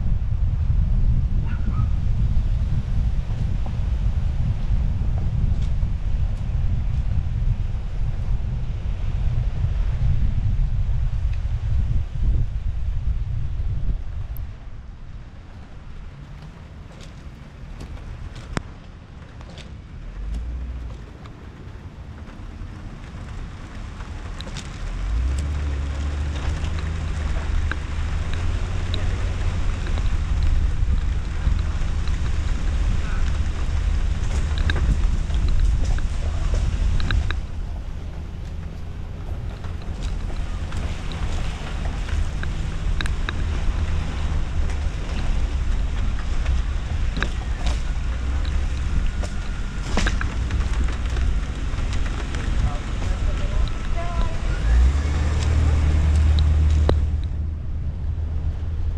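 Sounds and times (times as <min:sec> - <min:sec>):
wind rumble on microphone: 0:00.0 - 0:58.9
tyres hissing on wet pavement: 0:19.6 - 0:57.2
light ticks: 0:22.2 - 0:37.6, 0:38.4 - 0:57.4.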